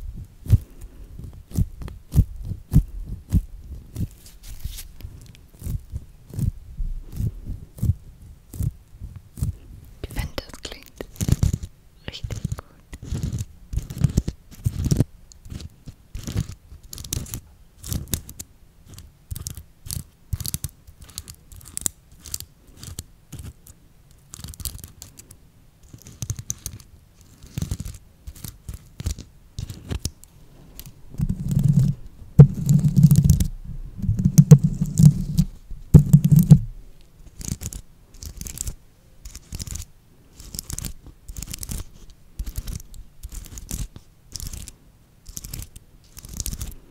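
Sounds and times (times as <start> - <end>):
rubbing against microphone: 0.0 - 18.2, 25.9 - 44.7
nails scratching sequins: 7.1 - 46.8.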